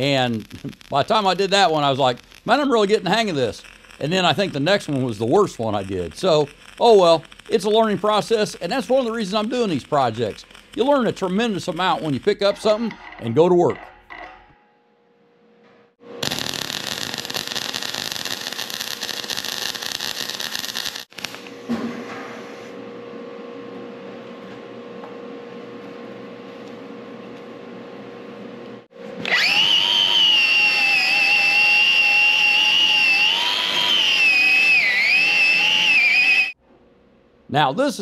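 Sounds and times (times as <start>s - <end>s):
welding crackle: 0.0s - 12.8s, 16.2s - 21.6s, 29.4s - 36.6s
power tool whine: 29.2s - 36.6s.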